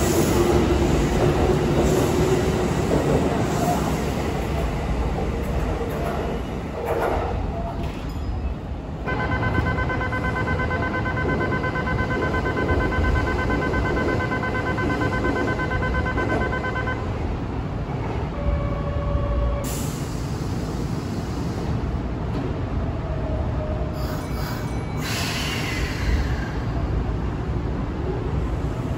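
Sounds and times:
train rumbling at platform: 0:00.0 - 0:28.9
pulsing multi-pitched signal tone: 0:09.1 - 0:17.1
hiss: 0:24.0 - 0:26.6.

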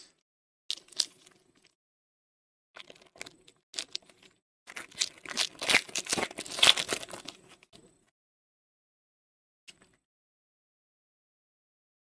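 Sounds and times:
foil wrapper tearing and crinkling: 0:04.7 - 0:07.4.

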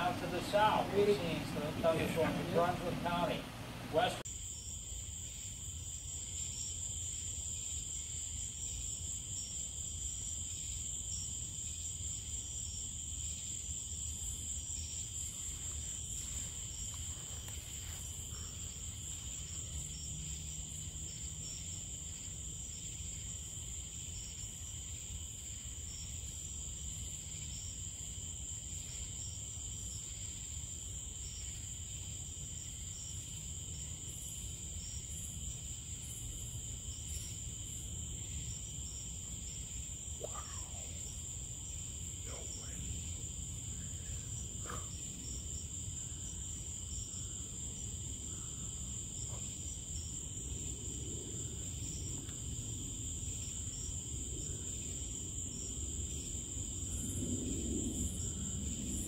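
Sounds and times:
low background rumble: 0:00.0 - 0:04.2
crickets and insects trilling: 0:00.0 - 0:59.0.

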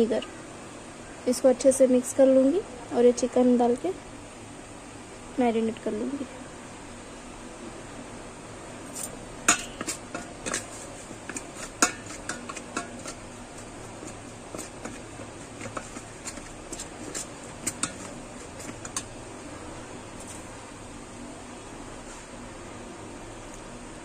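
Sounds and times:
spoon scraping a steel bowl: 0:08.9 - 0:19.2.

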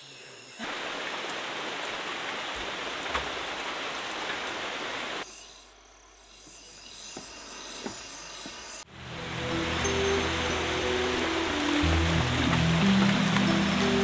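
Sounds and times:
heavy rain: 0:00.6 - 0:05.2, 0:08.9 - 0:14.0.

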